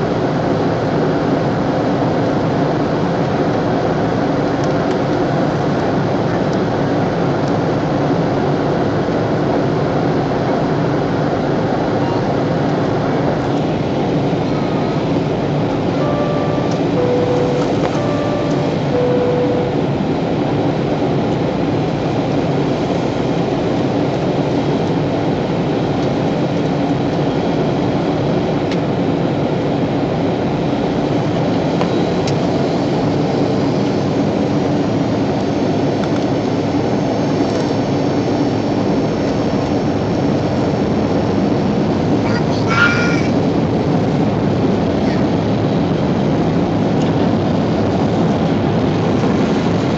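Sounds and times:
airliner cabin engine rush: 0.0 - 49.9
two-note cabin chime: 15.8 - 20.4.

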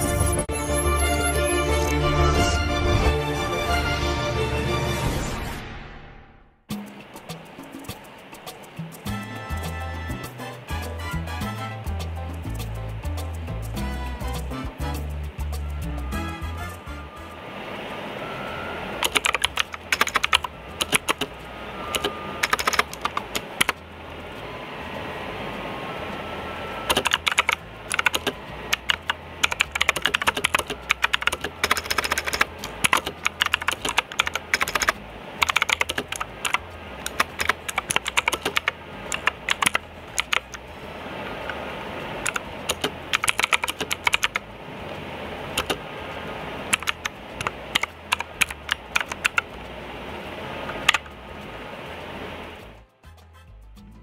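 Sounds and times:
mechanical keyboard key clicks: 19.0 - 21.3, 22.0 - 23.8, 26.9 - 40.5, 42.2 - 44.4, 46.7 - 49.4.

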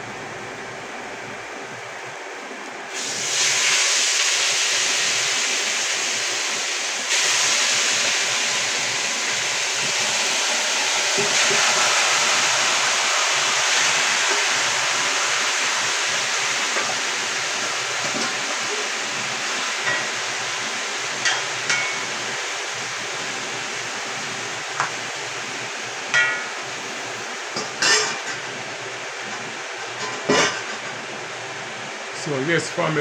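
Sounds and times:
chicken sizzling in a pot: 2.9 - 31.0.

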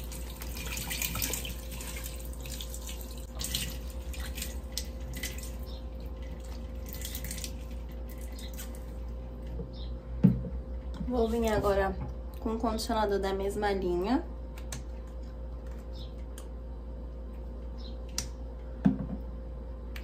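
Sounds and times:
tap water splashing into sink: 0.0 - 5.6.

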